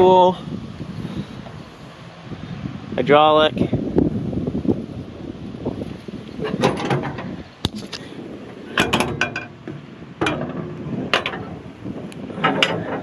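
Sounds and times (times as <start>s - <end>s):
metal hood latch clicks: 8.7s - 11.6s.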